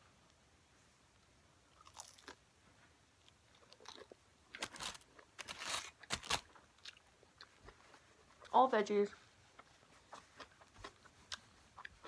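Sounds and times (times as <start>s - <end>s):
crunching of fried wrapper: 1.8s - 2.4s, 3.5s - 7.5s.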